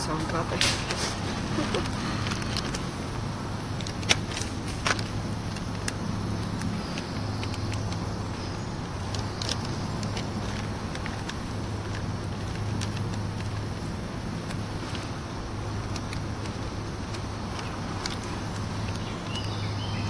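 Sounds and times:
light clicks and taps: 0:09.0 - 0:19.6.

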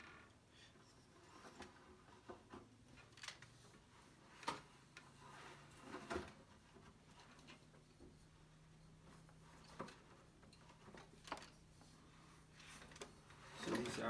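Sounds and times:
wooden bobbins clicking and knocking: 0:05.8 - 0:14.0.

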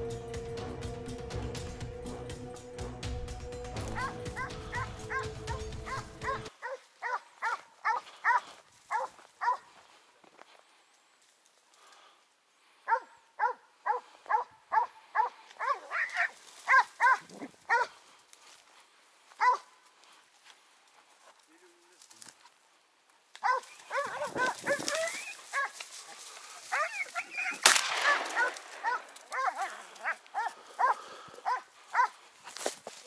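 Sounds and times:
dog barking: 0:03.9 - 0:09.7, 0:12.9 - 0:18.0, 0:19.4 - 0:19.7, 0:23.4 - 0:25.8, 0:26.7 - 0:32.2.

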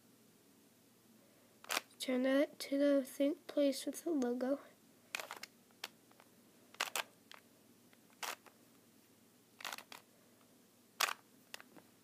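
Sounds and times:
puzzle cube plastic clacking: 0:01.6 - 0:02.0, 0:05.1 - 0:08.6, 0:09.6 - 0:10.1, 0:11.0 - 0:11.8.

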